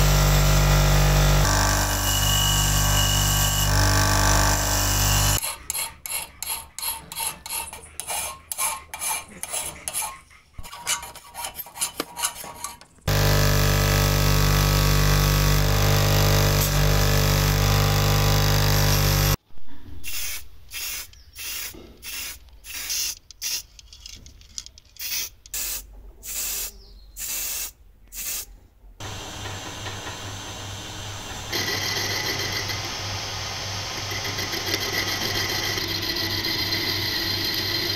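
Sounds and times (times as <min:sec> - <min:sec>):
bench grinder motor running: 0:00.0 - 0:05.4, 0:13.1 - 0:19.4, 0:29.0 - 0:37.9
metal lathe cutting steel: 0:00.0 - 0:05.4, 0:29.0 - 0:37.9
metal rasping on grinding wheel: 0:00.0 - 0:19.4, 0:31.5 - 0:33.1, 0:33.9 - 0:37.9.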